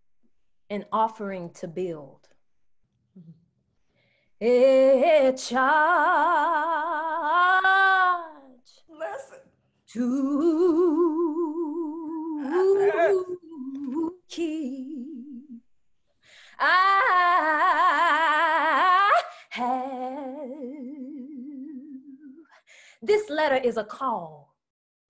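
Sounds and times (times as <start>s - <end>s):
woman singing unaccompanied: 4.4s - 8.8s, 9.9s - 15.6s, 16.5s - 22.5s.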